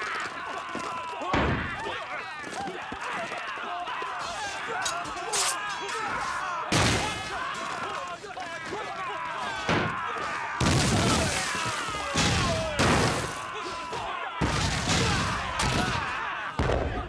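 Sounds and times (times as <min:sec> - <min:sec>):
soldiers shouting and yelling: 0:00.0 - 0:17.0
crashing debris: 0:06.7 - 0:08.1, 0:10.6 - 0:13.5, 0:14.4 - 0:16.9
loud explosions: 0:10.6 - 0:13.4, 0:14.4 - 0:16.0, 0:16.6 - 0:17.0.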